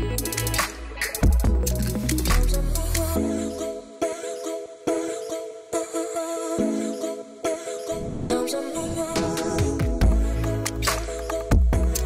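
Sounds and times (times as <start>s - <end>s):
deep bass: 0.0s - 3.2s, 9.9s - 11.0s.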